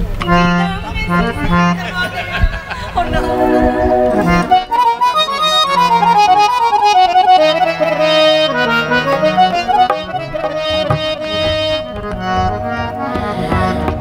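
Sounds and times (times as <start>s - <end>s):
harmonium melody: 0.0s - 2.3s, 3.0s - 14.0s
sustained bass notes: 3.0s - 13.1s.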